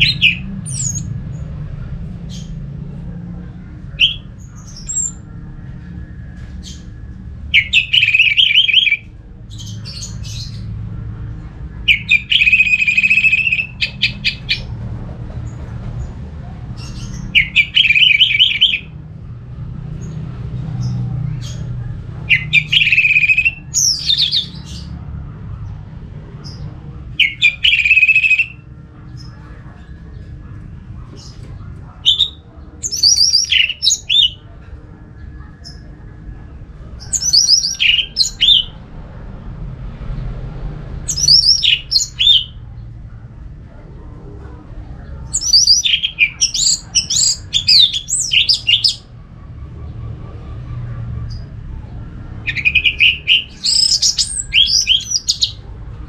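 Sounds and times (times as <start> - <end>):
thrush singing: 0.0 - 56.0
low rumble: 9.0 - 17.8.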